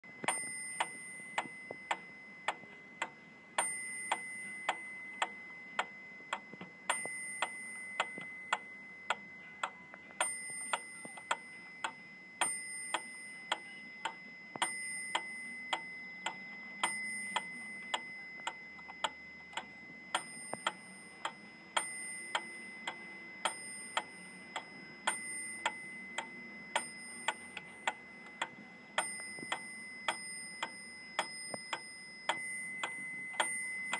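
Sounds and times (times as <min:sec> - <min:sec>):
metronome ticking: 0:00.2 - 0:33.9.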